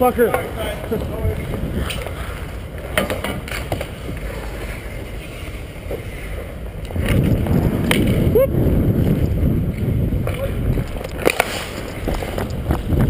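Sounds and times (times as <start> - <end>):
skate blades scraping on ice: 0.3 - 8.3, 8.9 - 13.0
wind on microphone: 0.7 - 2.7, 4.8 - 13.0.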